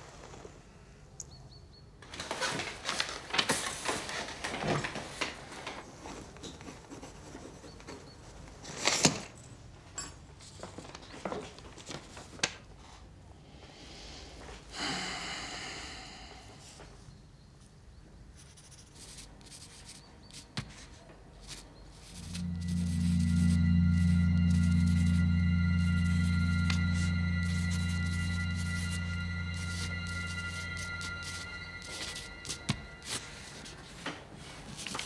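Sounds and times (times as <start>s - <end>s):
pencil scratching on paper: 6.4s - 8.0s, 18.4s - 23.3s, 29.6s - 33.7s.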